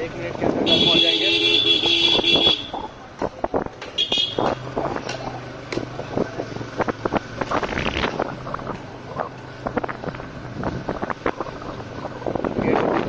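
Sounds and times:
wind buffeting microphone: 1.8s - 13.0s.

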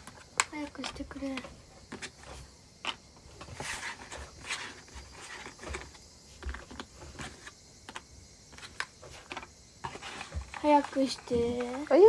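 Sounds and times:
puzzle pieces clicking and rustling: 8.6s - 12.0s.

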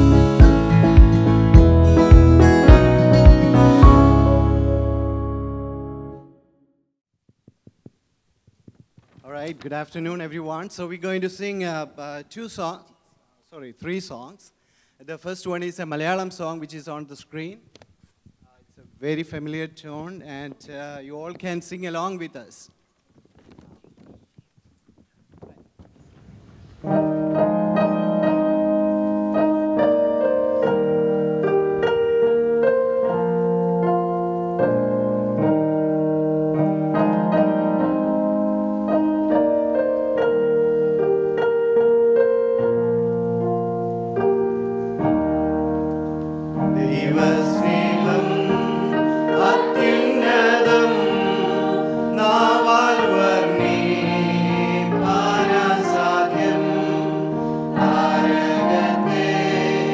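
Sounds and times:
electronic keyboard melody: 0.0s - 6.6s, 26.8s - 59.9s
group of voices singing: 46.7s - 59.9s.

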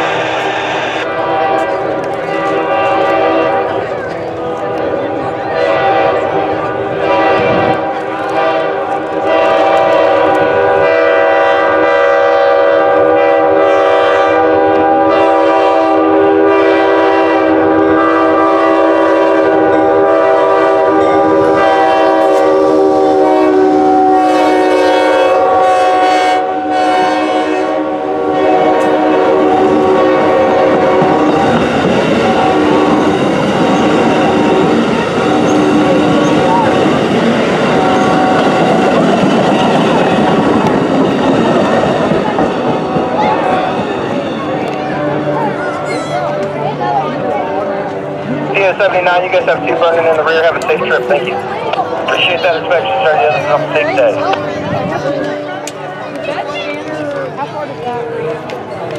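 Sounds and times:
locomotive air horn: 0.0s - 4.6s, 5.5s - 31.4s
train wheels clickety-clack: 28.7s - 45.5s.

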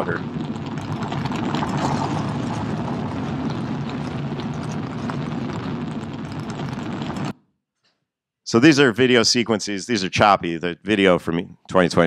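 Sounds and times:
noisy wash with small crackles: 0.0s - 7.4s.

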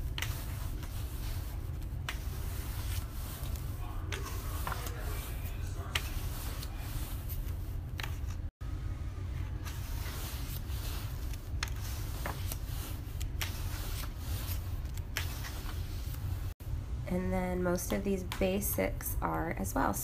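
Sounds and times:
book pages turning: 0.0s - 8.5s, 9.3s - 16.6s
paper rustling: 0.0s - 8.5s, 9.4s - 16.6s
steady low hum: 0.0s - 20.0s.

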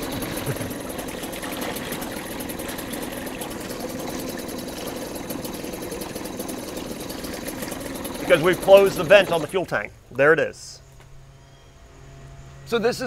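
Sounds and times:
water churning: 0.0s - 10.2s
outboard motor running: 0.0s - 11.2s.

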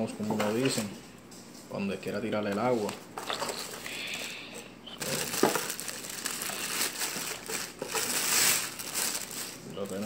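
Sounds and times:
plastic bag crinkling: 2.4s - 10.0s.

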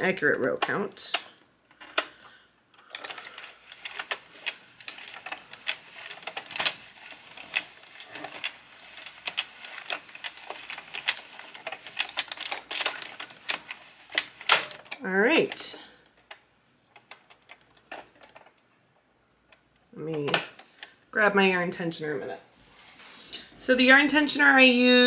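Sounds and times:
knitting machine plastic clicks: 0.5s - 18.7s.

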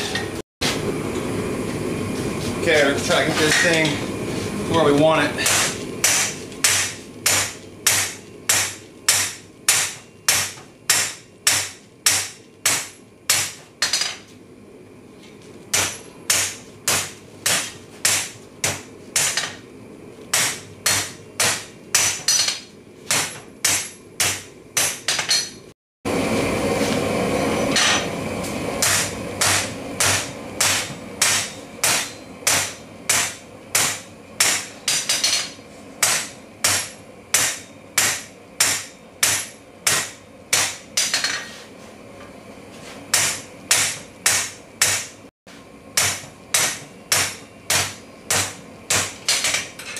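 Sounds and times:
hammer striking metal on anvil: 5.4s - 14.2s, 15.7s - 19.6s, 20.3s - 25.6s, 28.8s - 41.5s, 43.1s - 45.1s, 46.0s - 49.9s.

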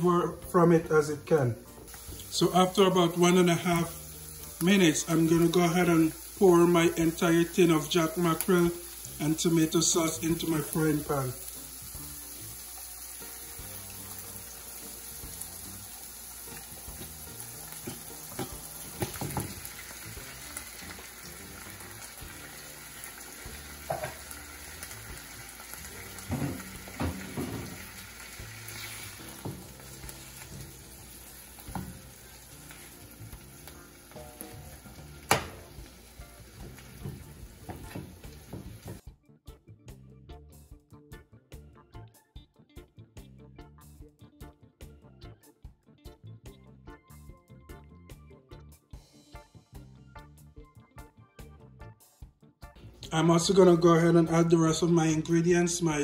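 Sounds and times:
vegetables sizzling in a frying pan: 1.8s - 39.0s
spoon clattering in a pan: 16.5s - 19.7s, 23.8s - 24.4s.

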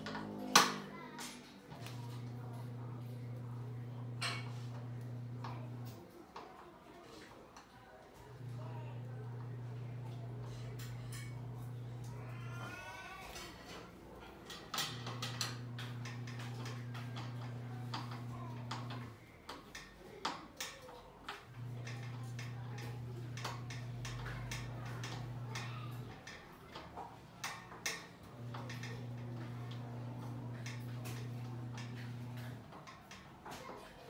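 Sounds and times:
small power tool motor running: 28.3s - 32.6s.

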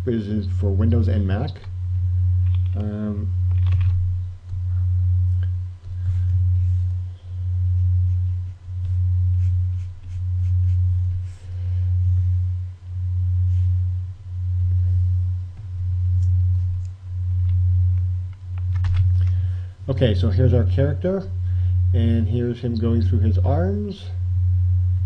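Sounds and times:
low pulsing hum: 0.0s - 25.0s.

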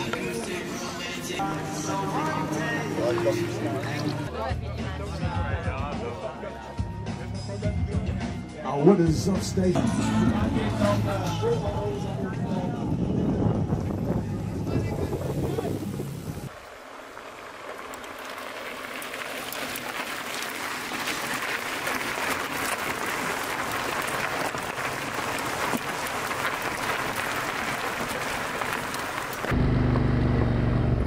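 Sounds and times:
bike tyres crunching over gravel: 0.0s - 4.3s, 13.8s - 29.6s.

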